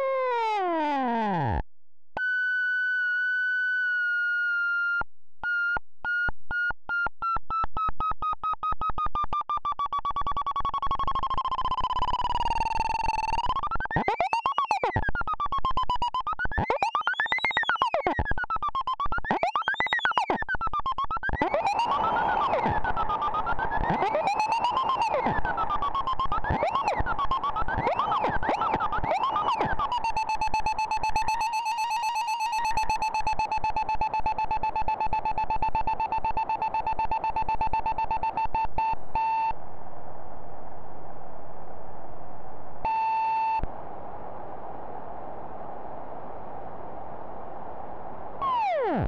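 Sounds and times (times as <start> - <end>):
synthesizer tone: 21.5 - 38.6
white noise: 39.5 - 42.9, 43.6 - 48.6.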